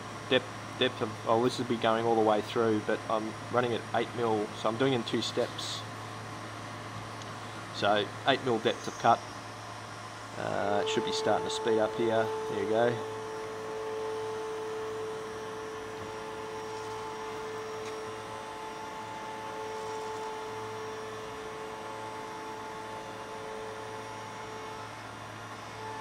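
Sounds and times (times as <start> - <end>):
milling machine cutting steel: 10.2 - 26.0.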